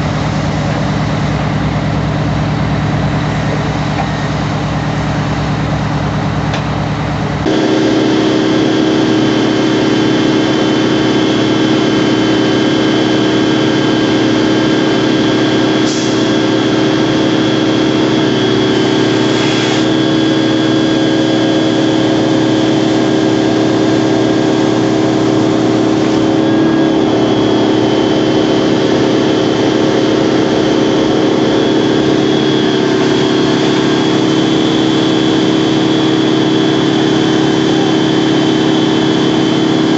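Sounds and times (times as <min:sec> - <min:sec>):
truck engine running hard: 0:00.0 - 0:39.9
hiss of spray: 0:19.3 - 0:19.9.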